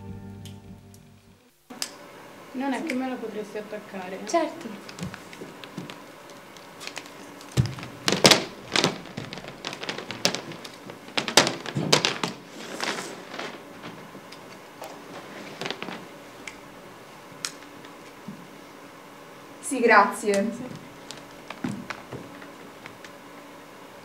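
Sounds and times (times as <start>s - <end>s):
knocks and thumps on a stage: 7.6s - 12.5s.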